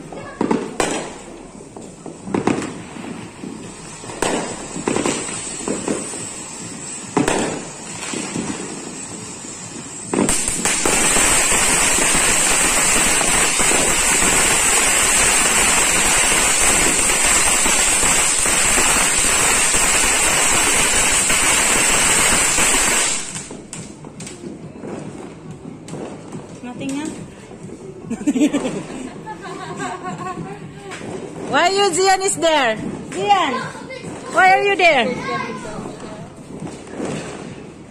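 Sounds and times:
firework fountain hissing: 0.0 - 37.9
firework pops: 0.2 - 8.8, 10.1 - 27.3, 34.0 - 37.9.

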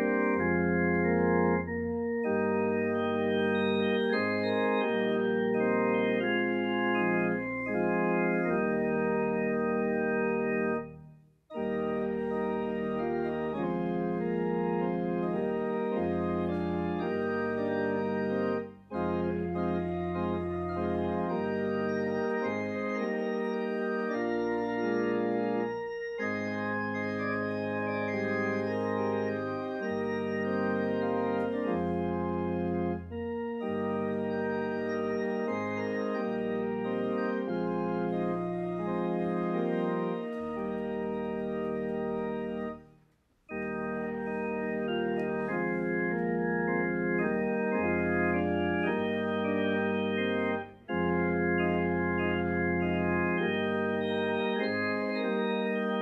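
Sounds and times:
church organ playing a hymn: 0.0 - 56.0.

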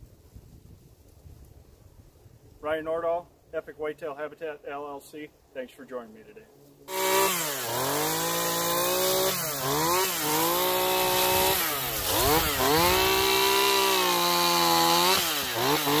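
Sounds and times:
chainsaw cutting into log: 6.9 - 16.0.

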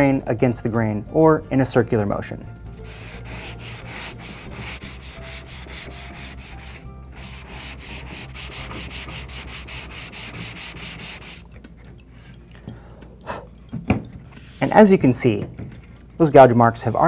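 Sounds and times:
sanding sponge on wood: 2.8 - 11.4.

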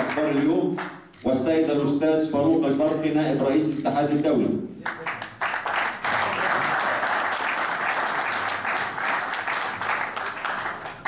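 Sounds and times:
audience applauding: 0.0 - 0.9, 4.8 - 11.0.

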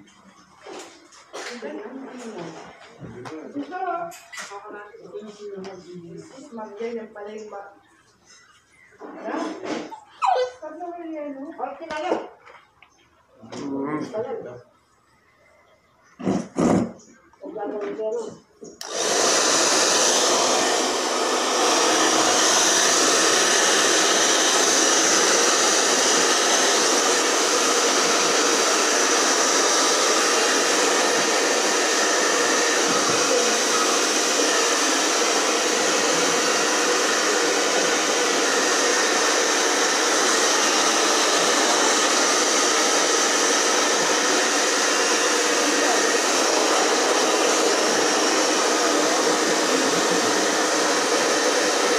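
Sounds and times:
hair dryer blowing: 18.8 - 51.9.

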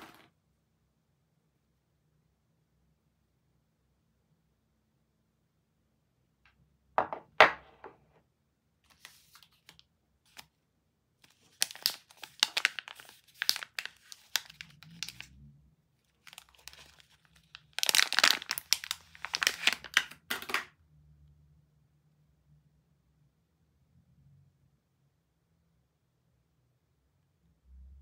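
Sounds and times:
soap bar knocking on wooden table: 7.0 - 8.0
plastic wrapper crinkling and tearing: 8.9 - 10.5, 11.2 - 15.3, 16.1 - 20.7.

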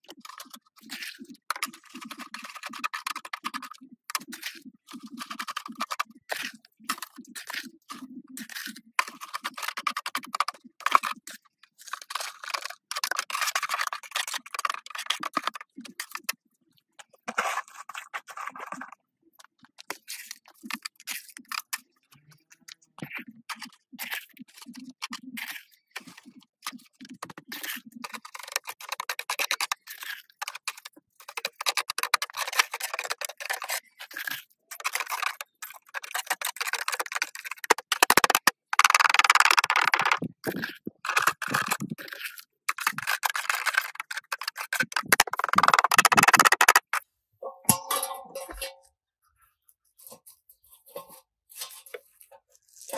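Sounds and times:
trowel scraping mortar in metal tin: 27.5 - 48.8, 50.0 - 52.9.

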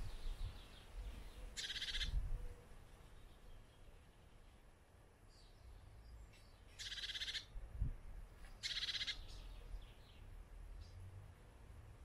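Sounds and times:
songbird trilling: 0.0 - 2.5, 6.3 - 7.5, 8.6 - 10.0
bird chirps: 0.0 - 4.6, 5.3 - 7.5, 8.5 - 11.0.

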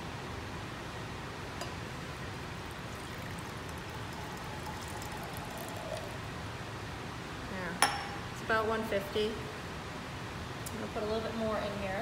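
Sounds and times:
water pouring into glass beaker: 2.5 - 6.4.

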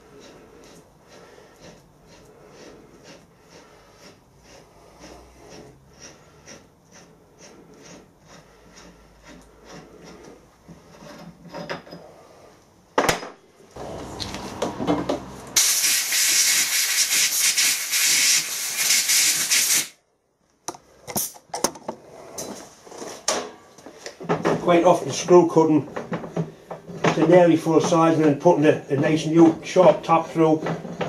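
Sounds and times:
tools set down on bench: 13.0 - 13.4
loud steady hiss: 15.6 - 20.0.

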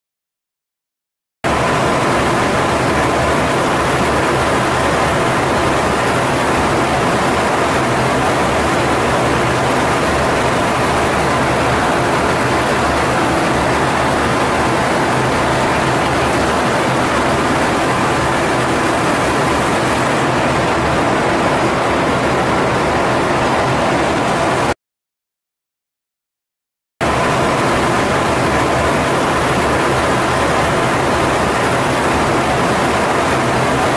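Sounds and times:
aircraft cockpit engine roar: 1.5 - 24.8, 27.0 - 33.9.

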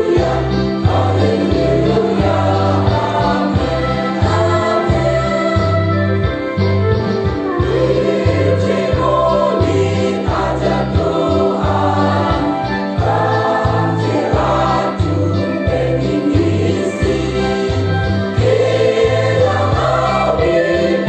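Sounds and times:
mixed choir singing: 0.0 - 6.2, 7.6 - 21.0.

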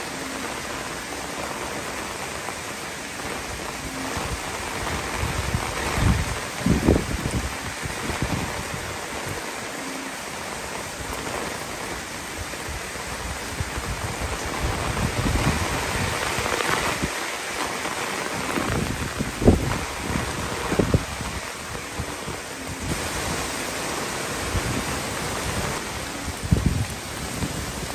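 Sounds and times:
heavy rain pouring: 0.0 - 27.9
wind buffeting microphone: 3.4 - 9.4, 11.9 - 27.9.

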